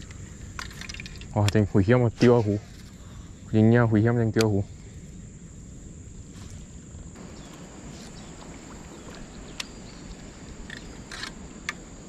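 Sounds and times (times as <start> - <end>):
high-pitched insect drone: 2.7 - 12.0
light clicks: 9.1 - 9.8.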